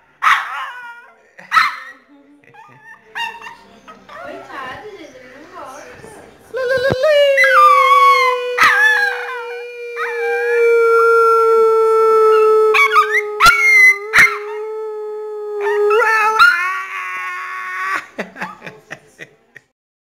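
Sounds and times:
dog howling: 6.6 - 18.0.

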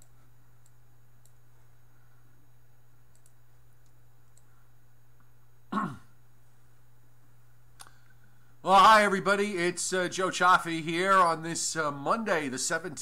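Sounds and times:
faint clicks: 0.0 - 1.4, 3.1 - 4.5, 7.8 - 8.3.

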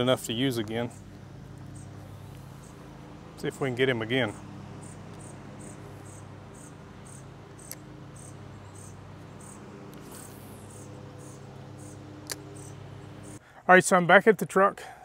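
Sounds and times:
steady low hum: 0.0 - 13.5
insects chirping: 0.8 - 3.5, 4.2 - 13.4
sharp clicks: 7.5 - 7.9, 12.2 - 12.8.

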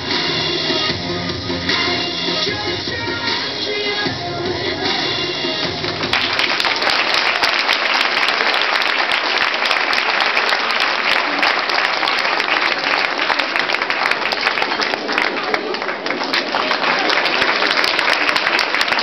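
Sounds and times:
dance music: 0.0 - 7.1
audience applause: 5.7 - 19.0.

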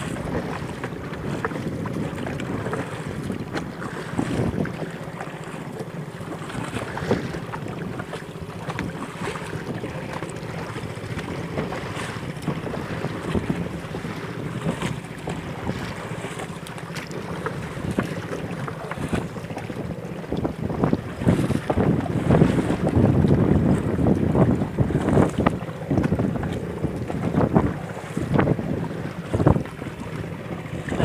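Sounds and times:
short splashes: 0.0 - 23.0
water slapping boat hull: 0.0 - 31.0
wind buffeting microphone: 0.0 - 31.0.

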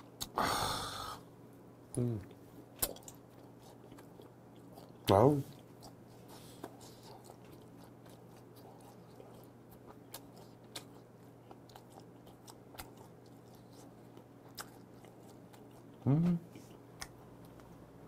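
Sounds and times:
low steady hum: 0.0 - 18.0
mouth clicks and smacks: 1.9 - 4.1
close chewing: 2.8 - 17.8.

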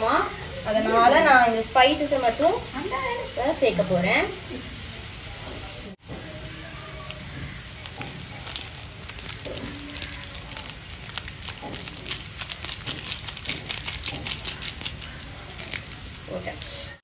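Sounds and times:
foil sachet crinkling: 6.9 - 16.8
water boiling with popping bubbles: 7.0 - 16.8.

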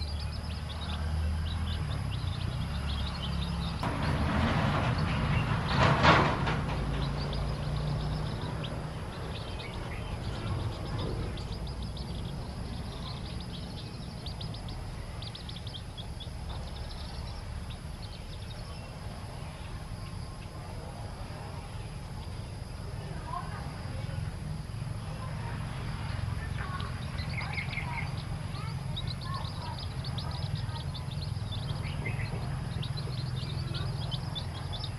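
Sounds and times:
chicks peeping: 0.0 - 20.6, 26.1 - 34.9
steady low rumble: 0.0 - 34.9
loud knock: 3.8 - 7.4.

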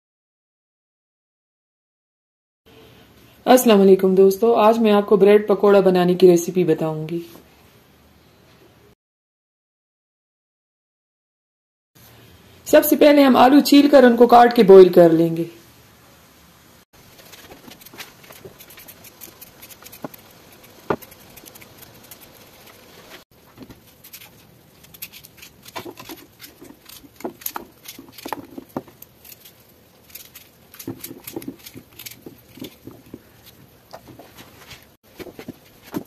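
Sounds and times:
peeler scraping potatoes: 17.1 - 36.0
knife cutting potatoes on tray: 17.2 - 36.0.

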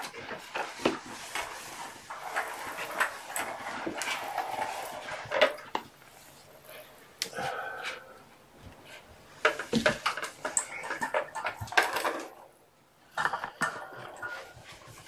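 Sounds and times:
kittens rustling and clattering: 0.0 - 7.7, 8.6 - 12.5.

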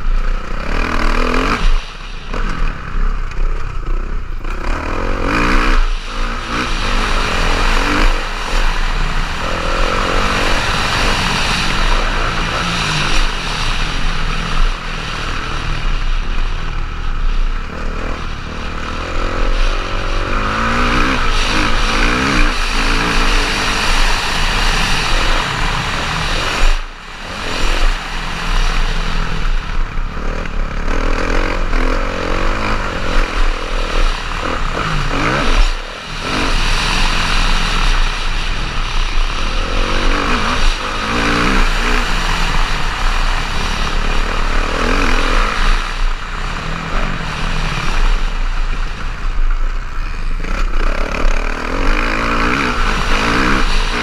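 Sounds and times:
motocross bike engine revving: 0.0 - 54.0
wind rush on microphone: 0.0 - 54.0.

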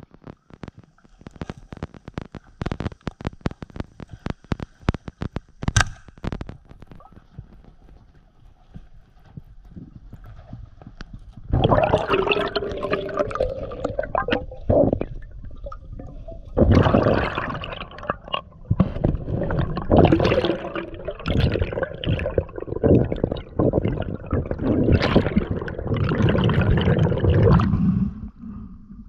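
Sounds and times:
air bubbles gurgling underwater: 11.4 - 28.7.

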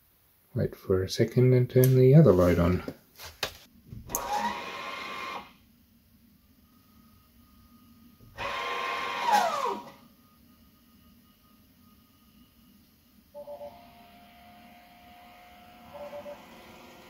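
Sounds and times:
small electric motor whining: 4.2 - 5.5, 8.3 - 10.0, 13.4 - 17.0.

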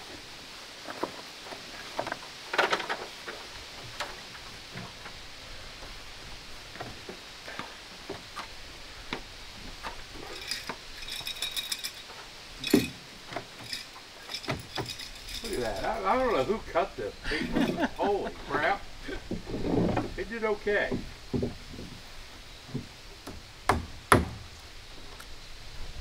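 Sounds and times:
metallic rattle: 9.8 - 18.2
knocks and taps on wooden roof: 20.9 - 22.0, 22.7 - 24.4.

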